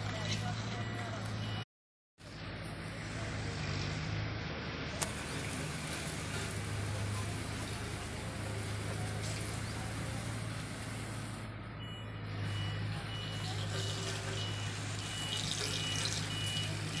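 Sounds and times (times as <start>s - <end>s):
reversing alarm beeping: 0.7s - 1.6s, 11.8s - 17.0s
diesel engine running: 2.2s - 17.0s.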